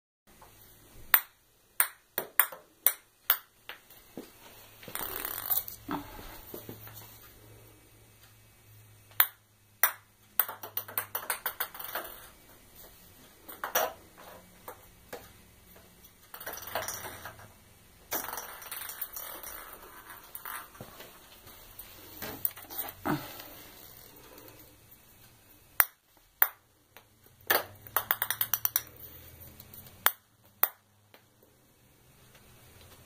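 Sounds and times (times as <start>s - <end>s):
ball bouncing on tile floor: 0.4s - 6.9s, 9.1s - 12.4s, 13.3s - 21.1s, 25.8s - 31.3s.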